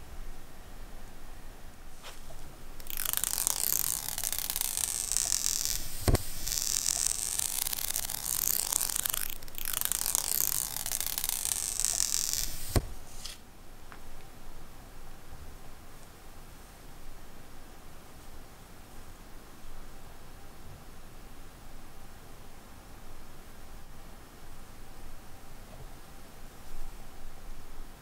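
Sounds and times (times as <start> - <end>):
plastic film peeling hiss: 2.0 - 13.4.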